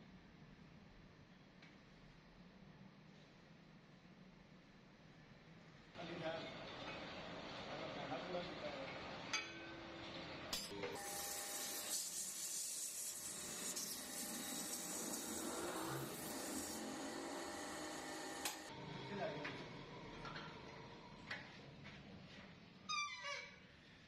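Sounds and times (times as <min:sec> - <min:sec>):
lathe running: 0:10.8 - 0:19.0
abrasive paper hissing on spinning drum: 0:11.0 - 0:18.7.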